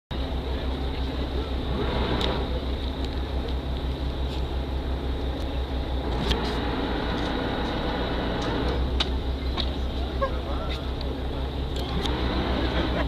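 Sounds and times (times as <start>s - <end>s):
boat engine drone: 0.1s - 13.0s.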